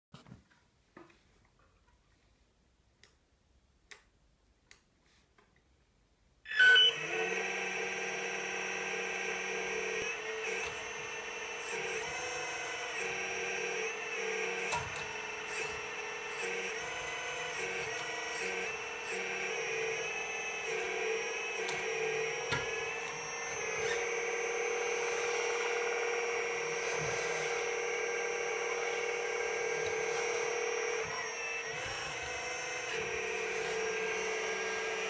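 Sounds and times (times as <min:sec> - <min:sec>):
hydraulic pump whining: 0:06.5 - 0:35.0.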